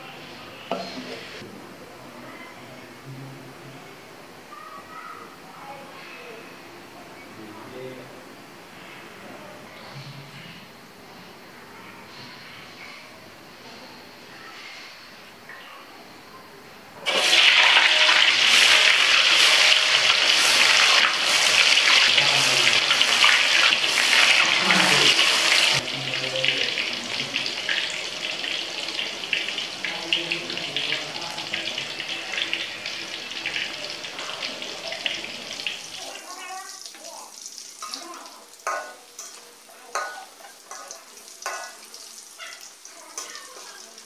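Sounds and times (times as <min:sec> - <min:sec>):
tofu sizzling in hot oil: 0:17.0 - 0:44.0.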